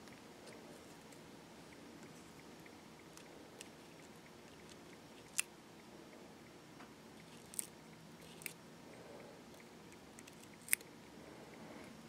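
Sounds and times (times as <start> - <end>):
scissors snipping: 7.4 - 7.7.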